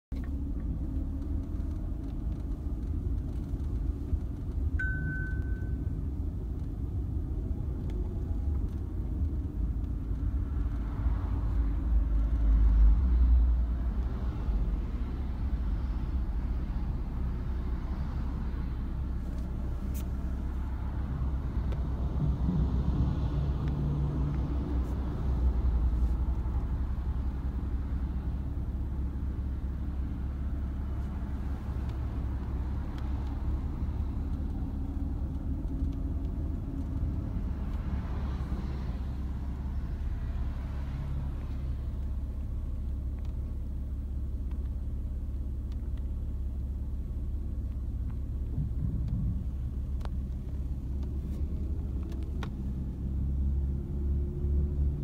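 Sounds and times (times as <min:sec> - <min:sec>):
car engine and tyres rumbling: 0:00.0 - 0:55.0
short high beep: 0:04.8 - 0:05.9.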